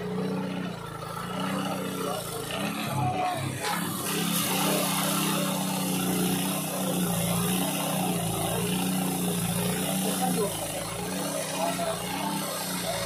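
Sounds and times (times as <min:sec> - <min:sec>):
saw grinding through steel: 0:00.0 - 0:13.0.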